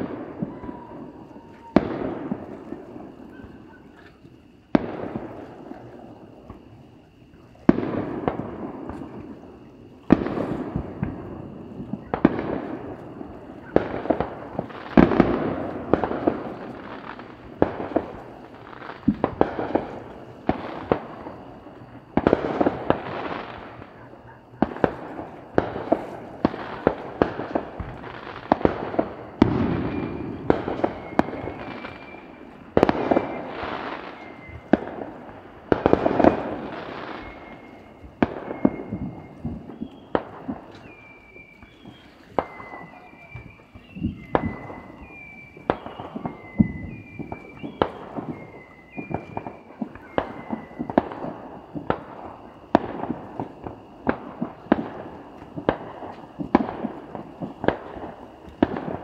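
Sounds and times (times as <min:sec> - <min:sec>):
fireworks bangs: 0:00.0 - 0:59.0.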